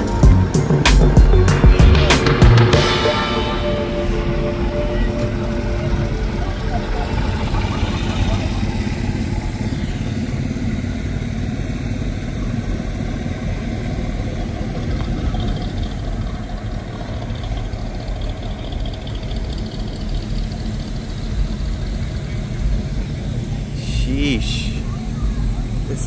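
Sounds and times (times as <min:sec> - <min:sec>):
truck engines idling: 0:00.0 - 0:26.0.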